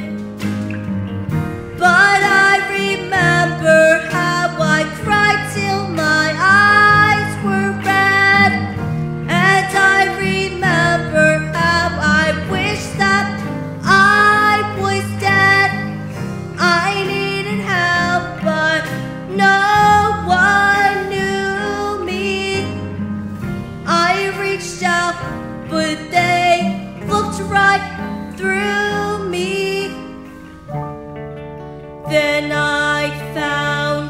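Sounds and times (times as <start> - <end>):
instrumental accompaniment: 0.0 - 34.0
boy singing: 1.8 - 16.0, 16.6 - 22.8, 23.9 - 30.0, 32.1 - 34.0.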